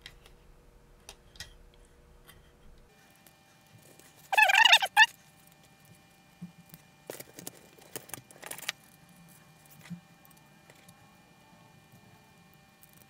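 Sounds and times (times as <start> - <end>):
faint steady whine: 0.0 - 13.0
loud pitched chirp: 4.3 - 5.1.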